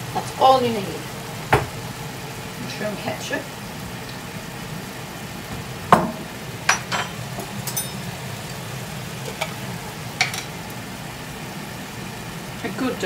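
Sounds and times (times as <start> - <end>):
sauce sizzling in a frying pan: 0.0 - 13.0
spoon clinking against pan: 6.7 - 8.1.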